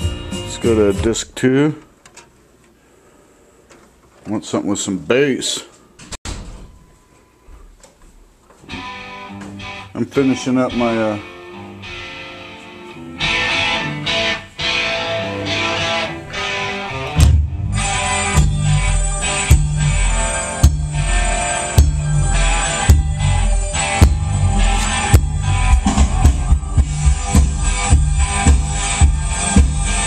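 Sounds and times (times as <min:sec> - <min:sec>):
drums: 0:00.0 - 0:01.4, 0:16.4 - 0:30.0
electric guitar: 0:08.6 - 0:30.0
deep bass line: 0:17.0 - 0:30.0.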